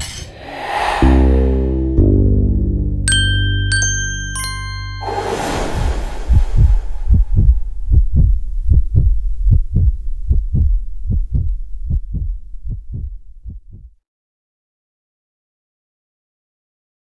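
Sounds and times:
deep bass thumps: 6.3s - 13.9s.

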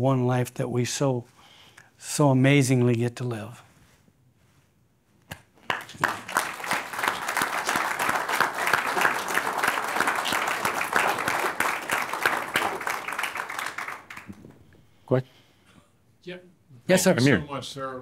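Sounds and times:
audience applauding: 5.6s - 14.8s.

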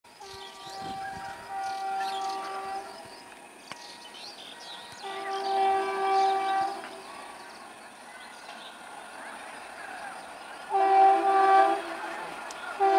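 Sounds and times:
train horn blasts: 0.1s - 3.3s, 3.9s - 7.2s, 10.7s - 12.9s.

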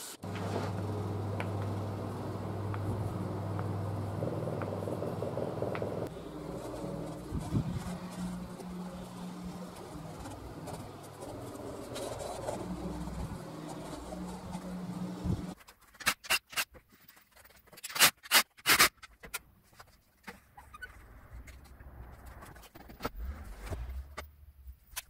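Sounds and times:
mechanical hum with held tones: 0.0s - 15.6s.

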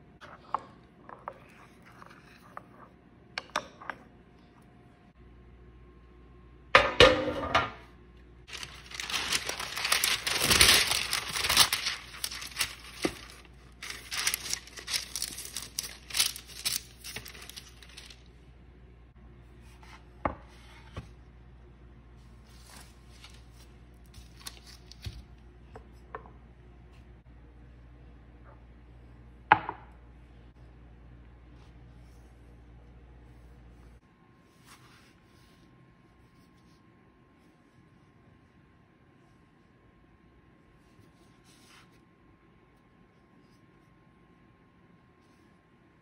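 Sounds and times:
paper crinkling and tearing: 8.5s - 18.3s, 22.6s - 25.2s.

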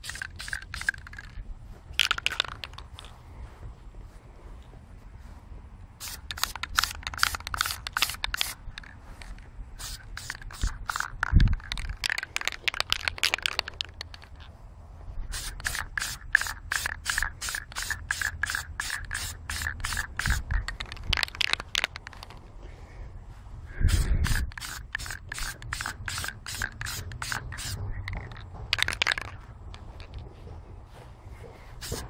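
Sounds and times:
spray can hissing: 0.0s - 1.3s, 6.0s - 14.2s, 15.3s - 22.3s, 23.9s - 29.4s, 31.8s - 32.0s.

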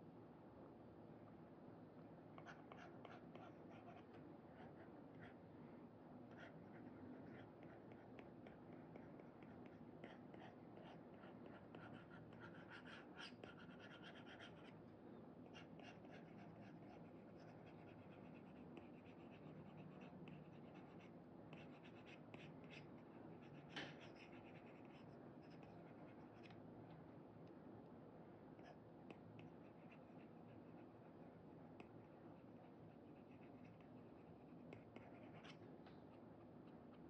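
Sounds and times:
stylus scratching tablet screen: 6.4s - 14.8s, 15.5s - 26.5s.

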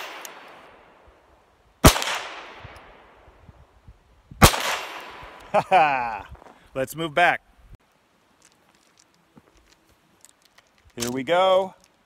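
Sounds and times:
pistol gunshots with echo: 1.8s - 2.7s, 4.4s - 5.4s.

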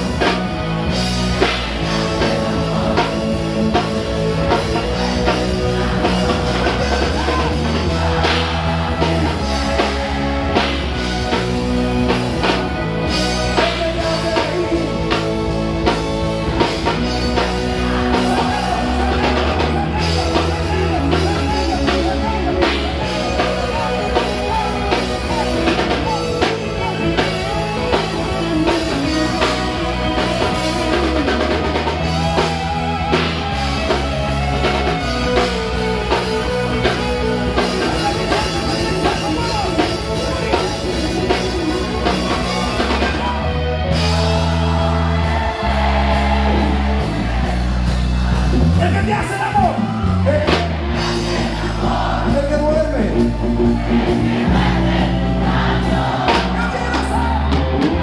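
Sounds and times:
heavy held bass notes: 0.0s - 58.0s
live rock band playing: 0.0s - 58.0s
person singing: 1.5s - 47.1s.

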